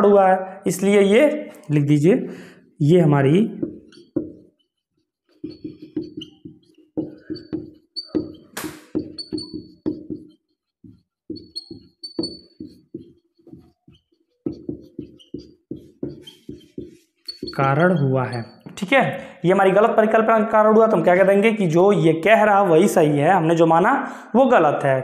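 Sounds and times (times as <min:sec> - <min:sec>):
marker squeaking on whiteboard: 0:02.8 - 0:21.5.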